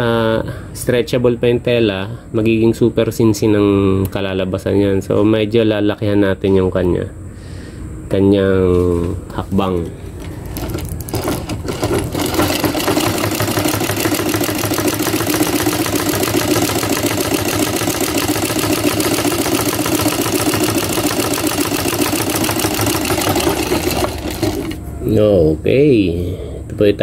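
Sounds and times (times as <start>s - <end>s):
sewing machine clattering: 10.6s - 24.8s.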